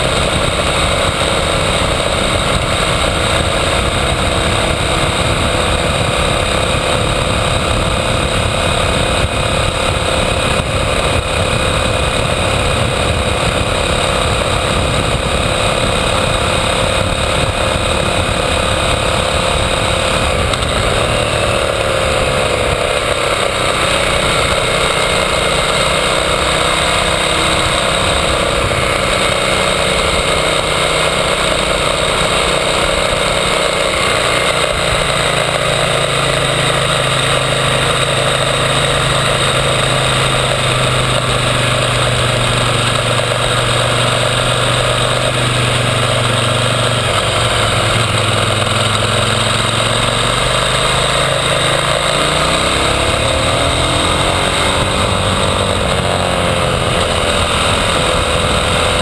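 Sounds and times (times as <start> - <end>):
wind on microphone: 0.0 - 24.6
motorcycle engine running: 0.0 - 59.0
road rumble: 0.0 - 59.0.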